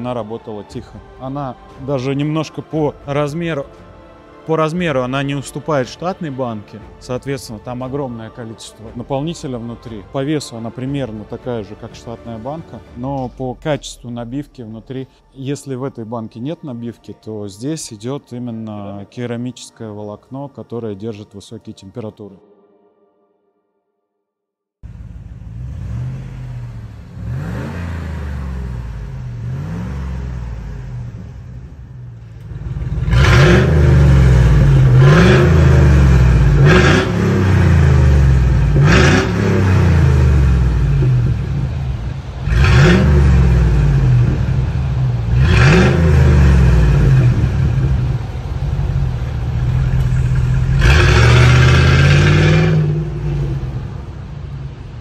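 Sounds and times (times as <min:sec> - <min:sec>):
truck engine revving: 0:24.8 - 0:55.0.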